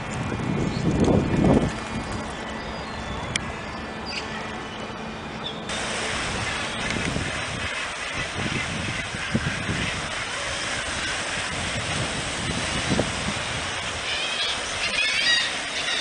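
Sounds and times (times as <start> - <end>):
wind buffeting microphone: 0.0 - 3.6, 5.7 - 14.9
wind and sea rushing: 0.0 - 4.0, 5.7 - 16.0
seabirds calling: 0.6 - 16.0.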